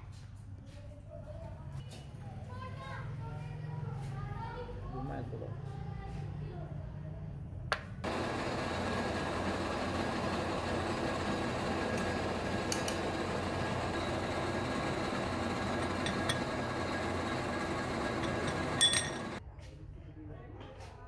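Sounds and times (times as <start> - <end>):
machinery noise: 8.0 - 19.4
metal shafts clinking together: 15.8 - 19.4.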